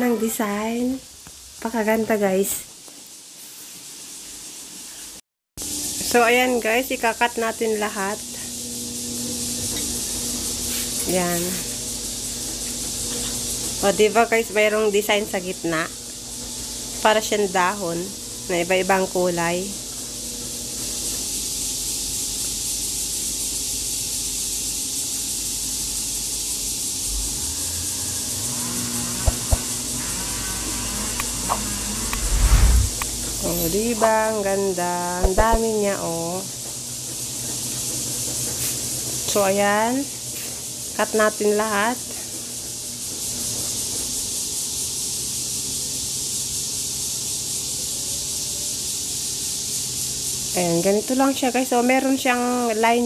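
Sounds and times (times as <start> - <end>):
high-pitched hiss: 31.1 - 36.0, 44.4 - 52.8.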